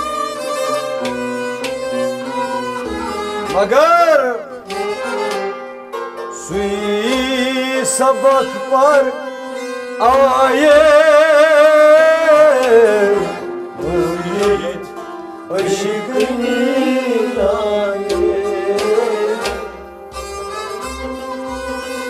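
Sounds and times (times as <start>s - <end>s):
harmonium: 0.0s - 22.0s
rabab: 0.0s - 22.0s
clay-pot drum beats: 13.8s - 19.8s.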